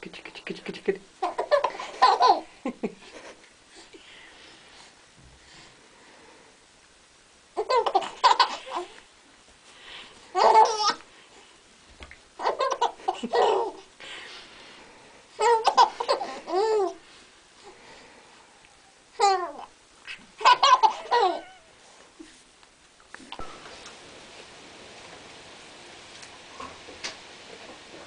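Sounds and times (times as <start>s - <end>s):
baby giggling: 1.2s - 2.5s, 7.6s - 8.9s, 10.3s - 11.0s, 12.4s - 13.9s, 15.4s - 17.0s, 19.2s - 21.6s.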